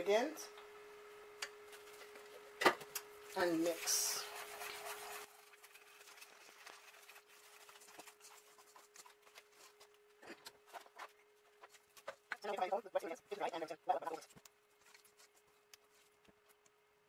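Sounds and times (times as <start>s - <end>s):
faint steady hum: 0.0s - 17.0s
whisk scraping metal bowl: 3.3s - 9.9s.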